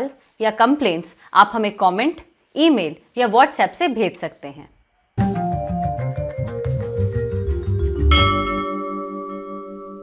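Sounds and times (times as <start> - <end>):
music with quick notes and bass: 5.2 - 8.8.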